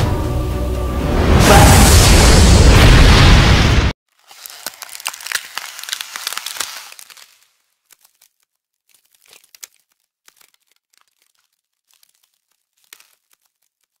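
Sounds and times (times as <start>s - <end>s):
faint irregular crackling: 4.1s - 14.0s.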